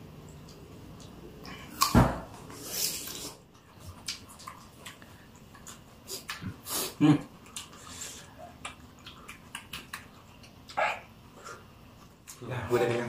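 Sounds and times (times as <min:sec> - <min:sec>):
chewing with wet mouth clicks: 0:00.2 - 0:01.9, 0:03.4 - 0:06.6, 0:07.2 - 0:12.5.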